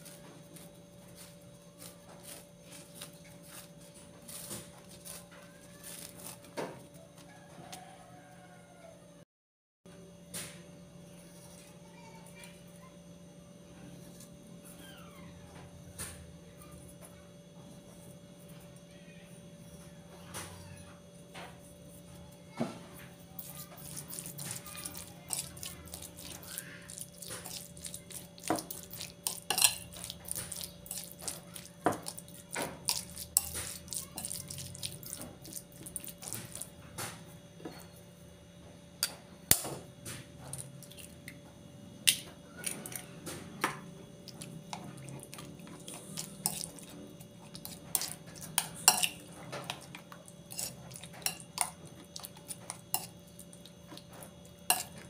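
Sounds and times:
spoon scraping ceramic bowl: 23.4s - 36.6s, 44.4s - 53.2s.

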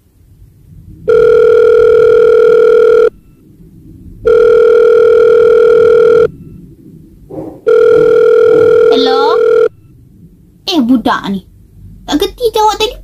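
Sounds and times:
telephone ringback tone: 1.1s - 3.3s, 4.3s - 6.5s, 7.7s - 9.9s.

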